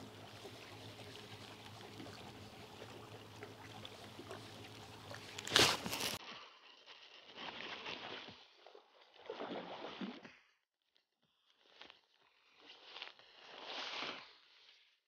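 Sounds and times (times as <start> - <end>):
water splashing and sloshing: 0.0 - 6.2, 7.3 - 10.5.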